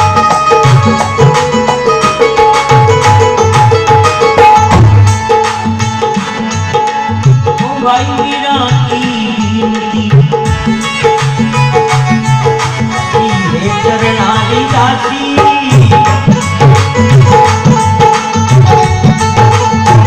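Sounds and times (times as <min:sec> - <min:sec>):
hand drum folk rhythm: 0:00.0 - 0:20.0
man singing: 0:07.5 - 0:11.6, 0:12.9 - 0:16.9.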